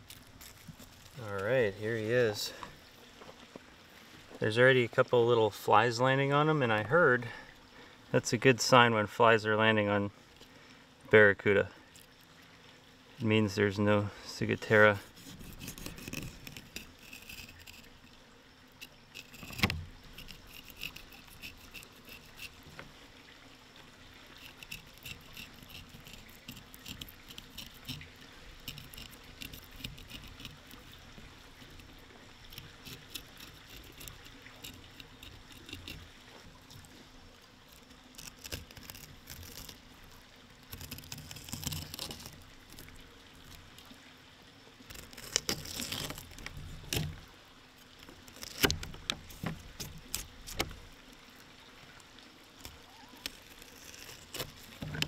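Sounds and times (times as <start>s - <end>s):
knife scraping fish skin: 14.7s - 18.0s, 18.9s - 22.6s, 24.4s - 31.0s, 31.7s - 36.0s, 37.7s - 39.8s, 40.7s - 42.9s, 44.9s - 47.2s, 48.2s - 50.8s, 52.6s - 55.0s.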